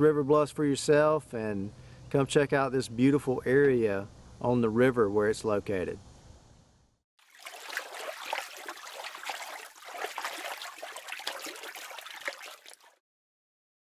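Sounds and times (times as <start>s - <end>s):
running water splashing: 7.2s - 13.0s.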